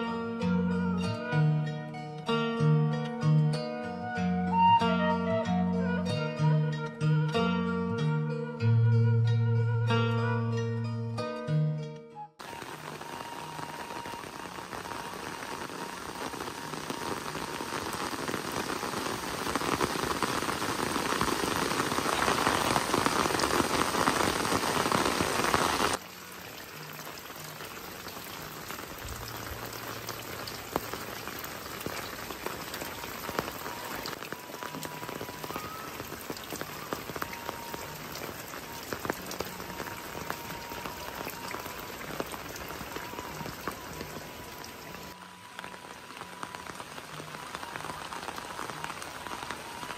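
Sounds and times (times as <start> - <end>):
heavy rain falling: 12.4 - 49.9
raindrops splashing: 12.4 - 49.9.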